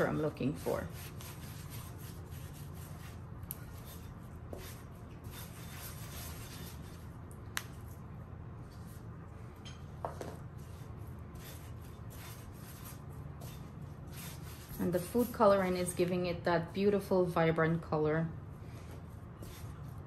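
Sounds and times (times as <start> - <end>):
hands kneading dough: 0.0 - 9.2, 10.1 - 16.2
steady low hum: 0.0 - 20.0.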